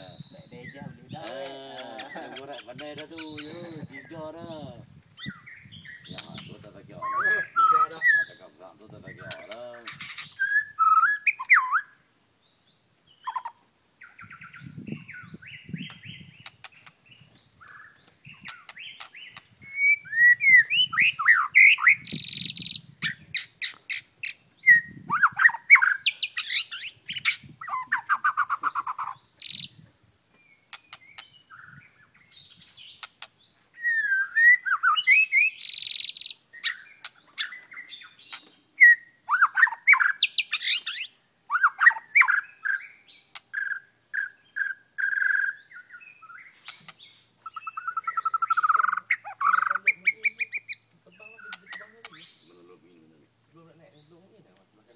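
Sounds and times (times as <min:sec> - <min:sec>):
bird singing whistled phrases: 0:03.2 - 0:04.2, 0:05.2 - 0:08.4, 0:10.0 - 0:12.0, 0:17.6 - 0:23.2, 0:24.6 - 0:29.8, 0:33.8 - 0:38.2, 0:38.8 - 0:46.7.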